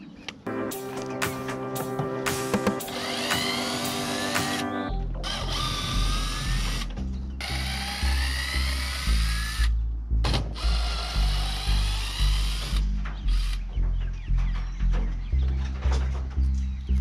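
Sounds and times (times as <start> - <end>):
background music with bass beat: 0.5 - 7.4.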